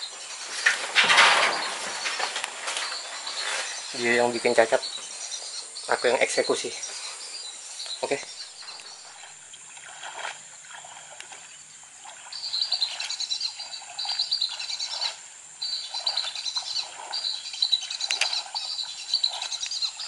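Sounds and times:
animal chirping trills: 0:12.3 - 0:20.0.

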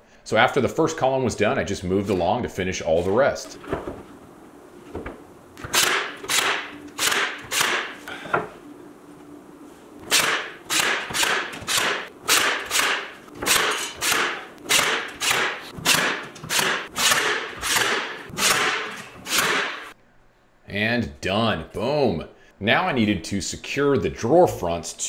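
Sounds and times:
nail gun firing: 0:05.6 - 0:08.0, 0:10.1 - 0:19.9.

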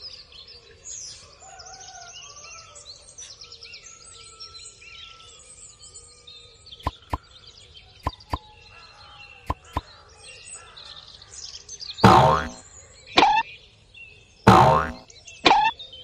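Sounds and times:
birds chirping: 0:06.8 - 0:07.4, 0:08.0 - 0:08.4, 0:09.5 - 0:09.9, 0:12.0 - 0:12.6, 0:13.2 - 0:13.4, 0:14.5 - 0:15.7
downward sliding sound effect: 0:12.0 - 0:12.6, 0:14.5 - 0:15.7.

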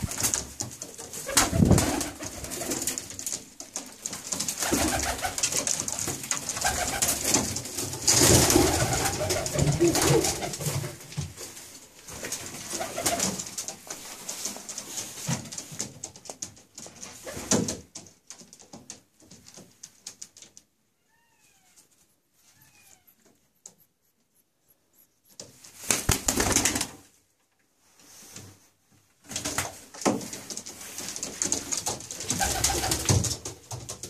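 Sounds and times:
pigeon wingbeats: 0:00.0 - 0:11.4, 0:12.1 - 0:20.5, 0:25.3 - 0:27.1, 0:29.3 - 0:34.0
pigeon feathers rustling: 0:00.0 - 0:20.6, 0:25.3 - 0:27.2, 0:27.9 - 0:34.0
faint falling squeaks: 0:20.9 - 0:23.5.

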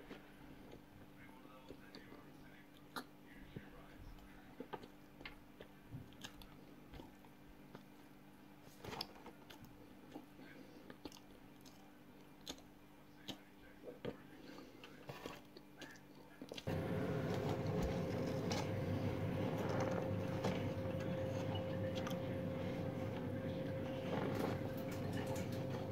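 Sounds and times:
chewing crunches and clicks: 0:04.6 - 0:07.9, 0:08.9 - 0:14.2, 0:14.8 - 0:16.7.

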